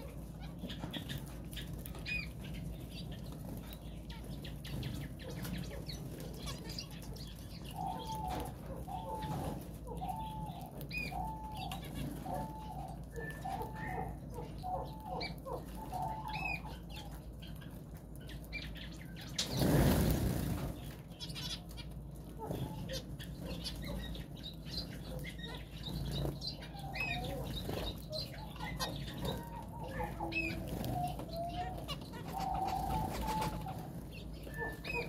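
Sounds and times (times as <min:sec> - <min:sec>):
finches chirping: 0:00.0 - 0:35.0
wings fluttering: 0:15.5 - 0:35.0.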